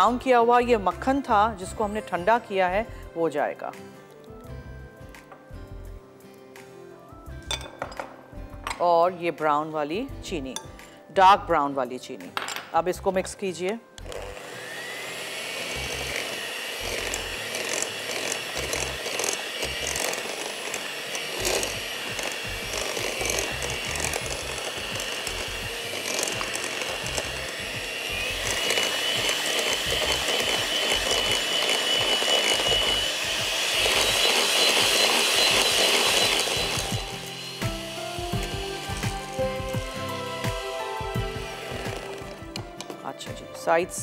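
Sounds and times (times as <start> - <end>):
electric hand mixer whining: 14.0 - 43.0.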